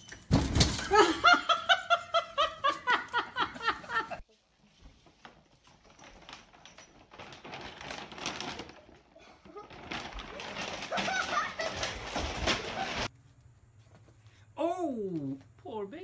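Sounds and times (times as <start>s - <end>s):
person laughing: 0.9s - 4.2s, 10.8s - 12.1s
plastic bag rustling: 4.6s - 13.1s.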